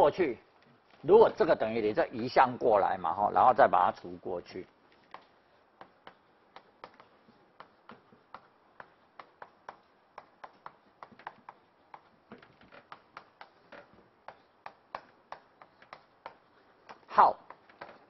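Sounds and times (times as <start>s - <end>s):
chalk tapping on chalkboard: 5.0s - 18.0s.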